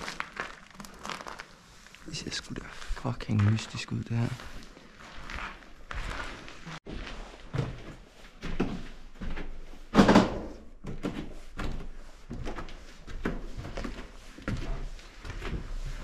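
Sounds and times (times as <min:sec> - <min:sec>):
footsteps: 0:02.1 - 0:09.7
knocks and thuds: 0:09.9 - 0:11.0.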